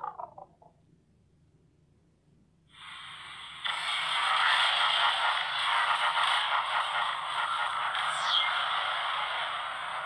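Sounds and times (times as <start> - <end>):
noisy hiss: 2.6 - 10.0.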